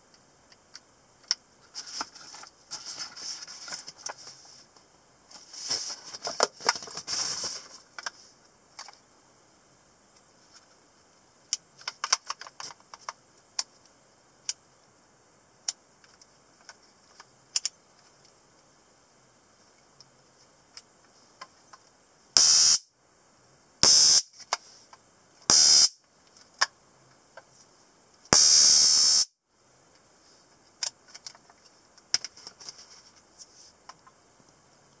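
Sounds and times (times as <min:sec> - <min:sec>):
stun gun arcing: 0:22.4 - 0:22.8, 0:23.8 - 0:24.3, 0:25.5 - 0:26.0, 0:28.3 - 0:29.3.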